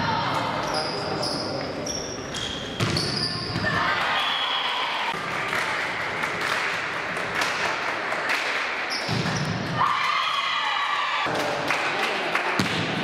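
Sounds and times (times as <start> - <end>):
sports hall noise: 0.0 - 13.0
volleyball hits: 12.6 - 13.0.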